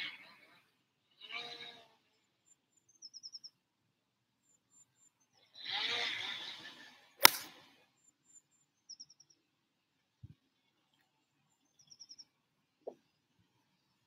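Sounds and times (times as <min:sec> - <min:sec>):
golf club striking ball: 0:07.2 - 0:07.5.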